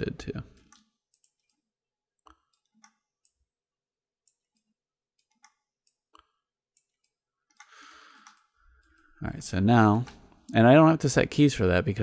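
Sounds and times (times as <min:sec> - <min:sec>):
computer mouse clicks: 0:00.5 - 0:01.6, 0:02.2 - 0:03.4, 0:04.2 - 0:09.1.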